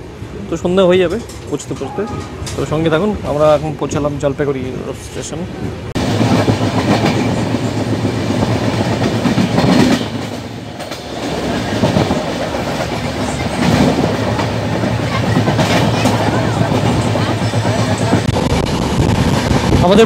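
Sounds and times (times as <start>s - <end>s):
train wheels rumbling on rails: 0.0s - 20.0s
train wheels clacking: 5.6s - 20.0s.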